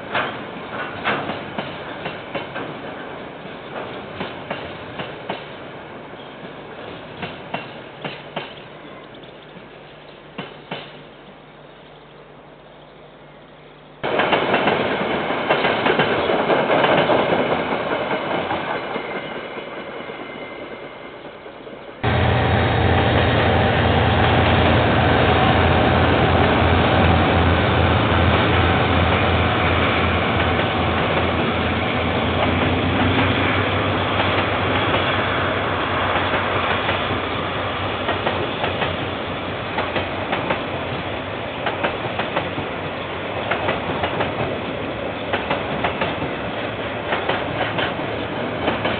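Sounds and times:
diesel locomotive rumble: 0:22.0 - 0:44.2.

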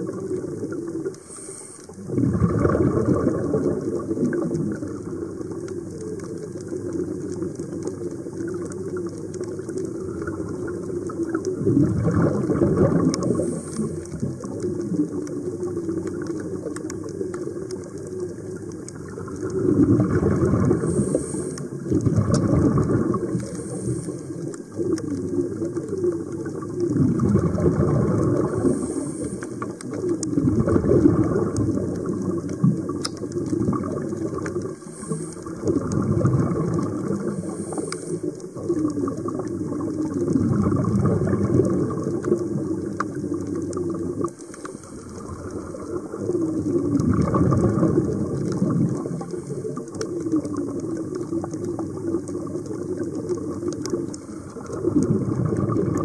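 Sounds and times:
diver exhaling bubbles underwater: 0:00.0 - 0:56.0
underwater crackle of clicks: 0:00.0 - 0:56.0
regulator inhalation hiss: 0:01.1 - 0:02.0, 0:20.8 - 0:21.8, 0:23.4 - 0:24.5, 0:28.6 - 0:29.8, 0:34.8 - 0:35.6, 0:37.2 - 0:38.4.

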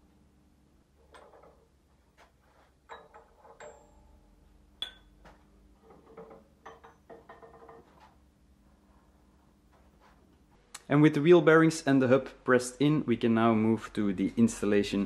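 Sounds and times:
steel parts clinking and knocking: 0:01.0 - 0:01.8, 0:02.7 - 0:08.0
metallic ringing: 0:02.8 - 0:05.3.

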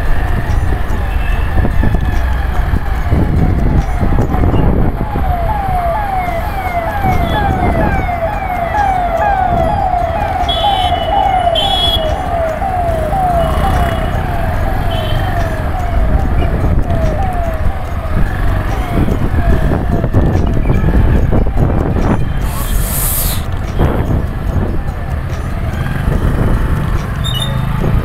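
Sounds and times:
wind on microphone: 0:00.0 - 0:08.2, 0:15.8 - 0:25.0
siren yelping: 0:01.5 - 0:25.1.

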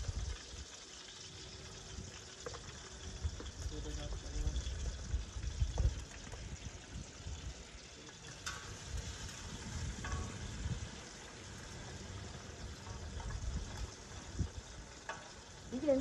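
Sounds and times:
fish sizzling in hot oil: 0:00.0 - 0:16.0
metal tongs clicking on pot: 0:08.3 - 0:08.9.

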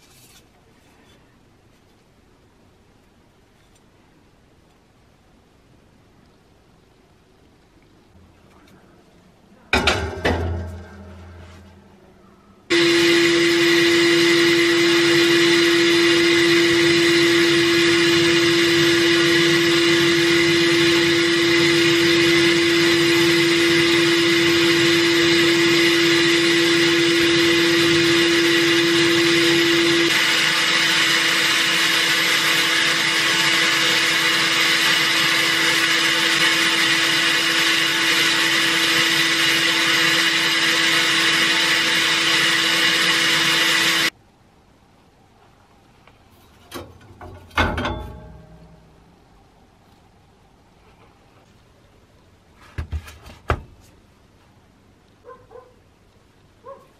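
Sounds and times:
steady hum: 0:09.6 - 0:40.8.

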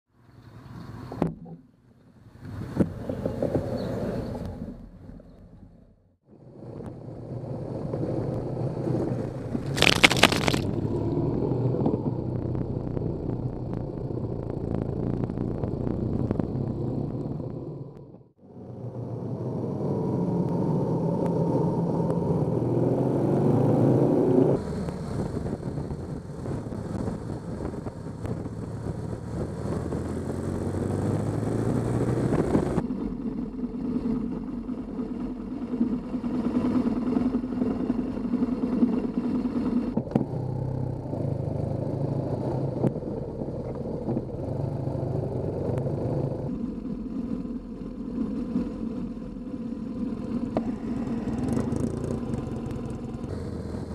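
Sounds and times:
wind noise: 0:06.5 - 0:18.0, 0:19.1 - 0:40.2
motorcycle engine revving: 0:06.7 - 0:53.9
tyre noise: 0:09.1 - 0:11.0.

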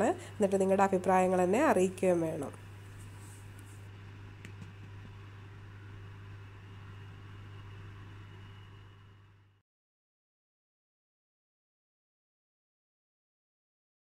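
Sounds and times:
low room hum: 0:00.0 - 0:09.6
light hiss: 0:02.5 - 0:05.2.

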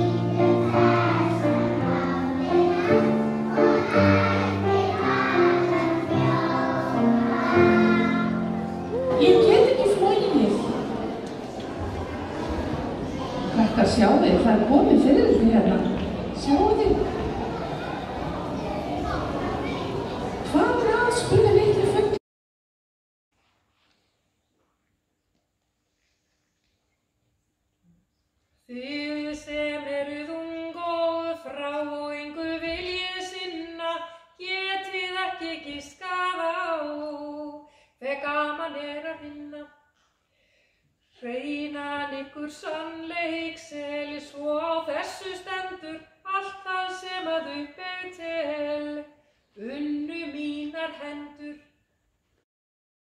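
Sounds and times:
woman singing: 0:28.7 - 0:39.7, 0:41.2 - 0:51.7.

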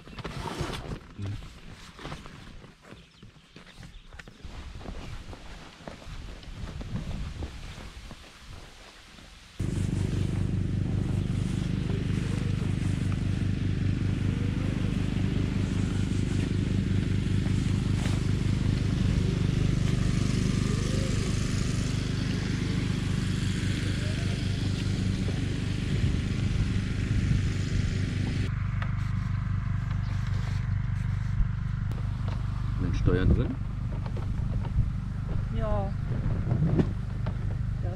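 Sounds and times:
engine droning: 0:09.6 - 0:37.9.

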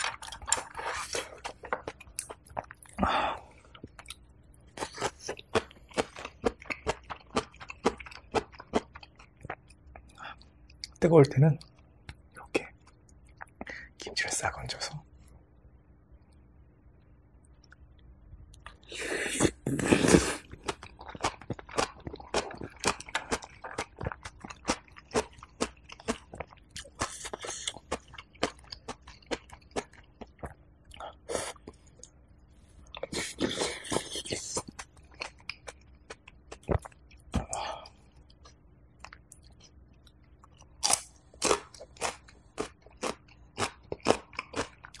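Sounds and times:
wet crunchy chewing: 0:00.0 - 0:03.0, 0:19.5 - 0:32.1, 0:40.4 - 0:45.0.

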